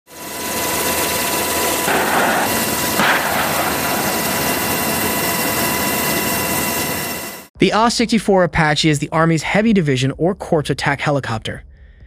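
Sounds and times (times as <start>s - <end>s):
helicopter rotor and engine noise: 0.1s - 7.5s.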